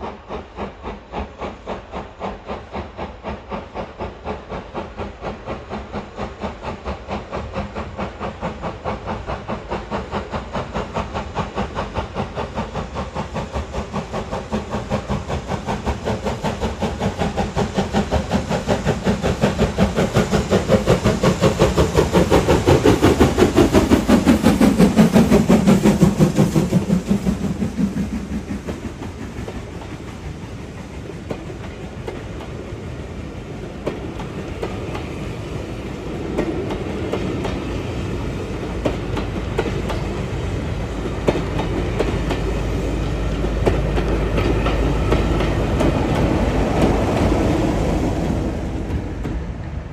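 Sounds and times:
steam locomotive exhaust beats: 0.0 - 49.9
train wheels clacking on rails: 0.0 - 49.9.

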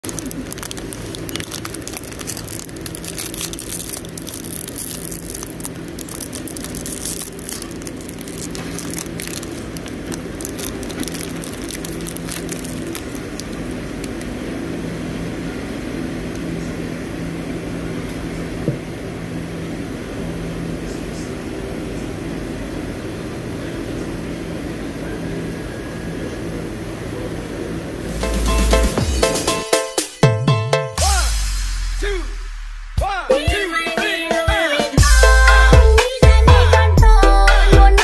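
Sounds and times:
plastic wrapper crinkling: 0.0 - 14.4
low mechanical hum: 0.0 - 29.6.

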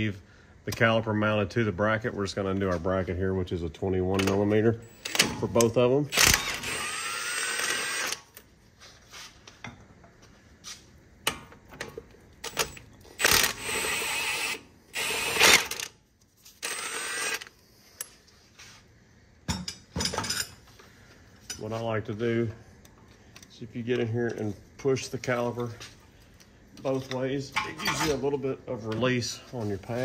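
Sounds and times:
impact wrench bursts: 4.2 - 8.4, 12.4 - 16.0, 16.6 - 17.6.

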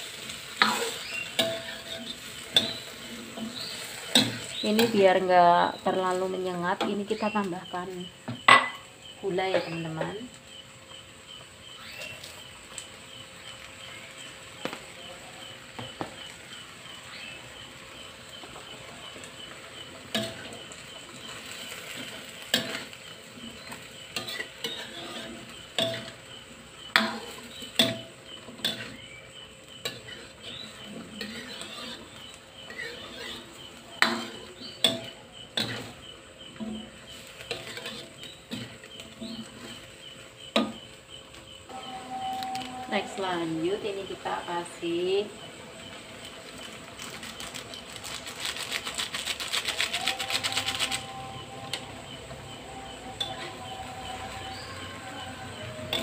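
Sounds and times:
metal spatula scraping a wok: 0.0 - 7.4, 19.1 - 40.9, 53.0 - 56.0
food sizzling: 0.0 - 56.0.

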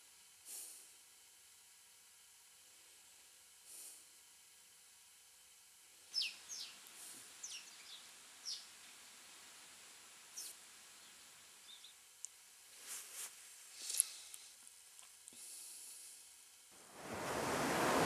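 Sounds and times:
faint hiss: 0.0 - 1.2, 3.6 - 4.3, 5.9 - 18.0
sparrow chirping: 6.1 - 6.8, 7.4 - 8.7, 10.4 - 12.0.

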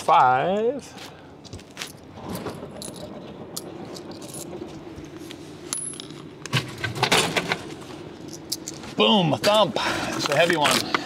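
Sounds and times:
vending machine humming: 2.0 - 11.0.

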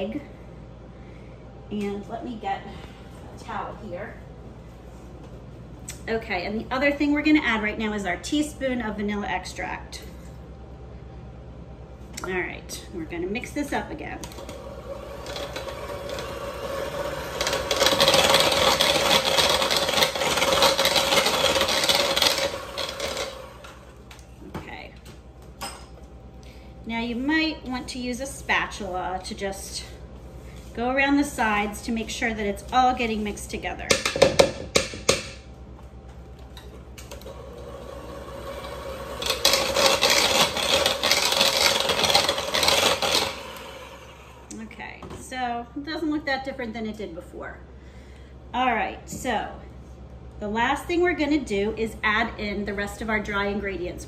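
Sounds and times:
beaters scraping through batter: 14.3 - 23.8, 37.6 - 43.8
electric hand mixer whine: 14.3 - 24.0, 37.2 - 44.5.

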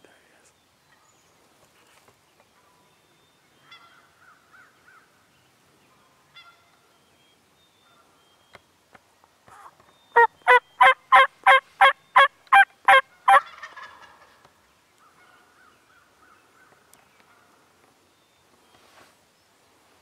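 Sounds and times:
turkey yelping: 10.2 - 14.3.

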